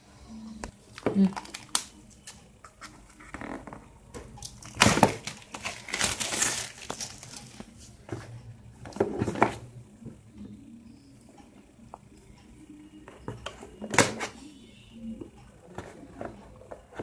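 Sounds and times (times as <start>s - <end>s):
plastic wrapping crinkling: 0.9s - 2.4s, 4.4s - 7.8s.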